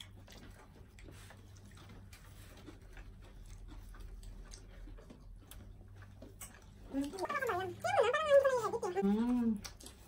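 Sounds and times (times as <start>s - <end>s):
people chewing: 0.0s - 10.0s
small clicks of fingers picking food: 9.6s - 10.0s.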